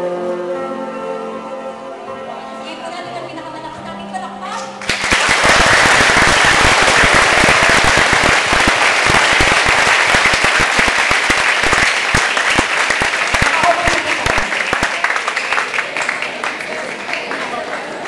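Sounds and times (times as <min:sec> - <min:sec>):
music: 0:00.0 - 0:05.4
crowd applauding: 0:04.8 - 0:18.0.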